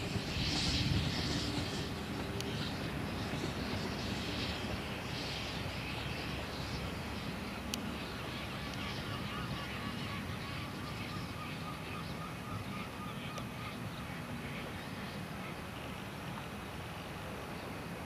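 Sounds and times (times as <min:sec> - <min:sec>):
wind on microphone: 0:00.0 - 0:11.5
faint honking bird calls: 0:08.0 - 0:15.9.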